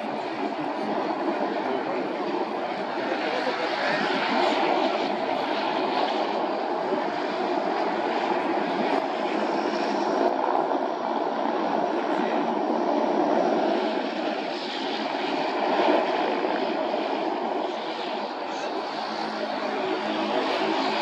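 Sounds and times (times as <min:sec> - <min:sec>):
propeller airplane engine: 0:00.0 - 0:21.0.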